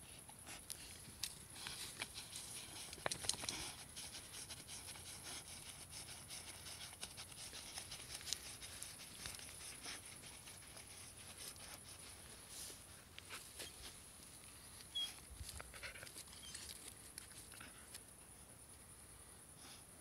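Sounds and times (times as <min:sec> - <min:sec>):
dog scratching earth: 0:01.2 - 0:12.5.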